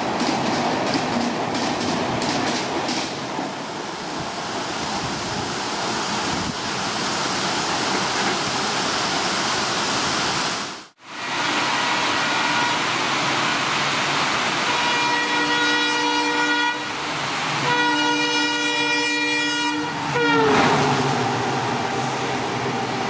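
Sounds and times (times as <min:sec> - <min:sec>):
train coaches clattering over rail joints: 0:00.0 - 0:03.3.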